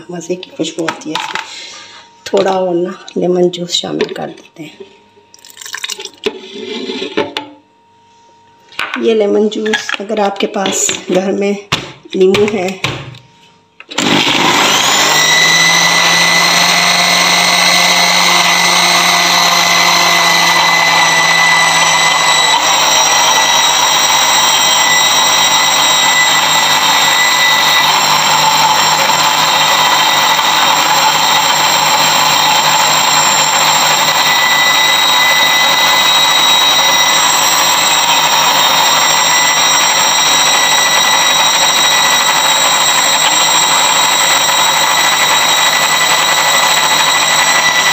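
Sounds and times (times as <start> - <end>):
blender motor whining: 13.8 - 47.9.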